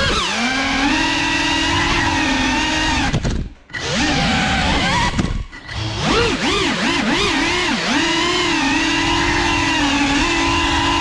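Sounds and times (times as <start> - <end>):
drone motors whining: 0.0 - 11.0.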